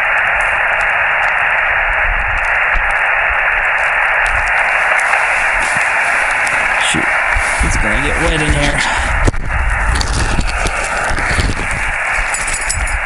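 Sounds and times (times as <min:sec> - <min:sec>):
radio band noise hiss: 0:00.0 - 0:13.0.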